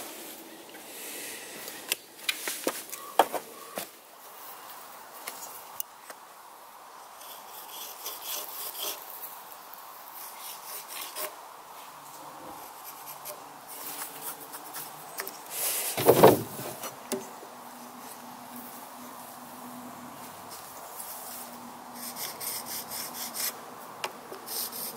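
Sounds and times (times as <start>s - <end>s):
pencil scratching on log: 7.2s - 9.0s, 10.2s - 11.4s, 12.6s - 14.9s, 22.0s - 23.6s, 24.5s - 24.9s
square sliding on wood: 15.9s - 16.9s.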